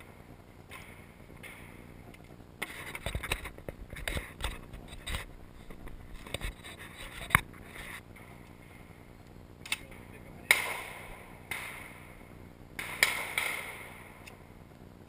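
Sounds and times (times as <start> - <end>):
shotgun metallic clicks: 9.6 - 11.9
shotgun sharp snap: 10.5 - 12.0, 12.8 - 14.0.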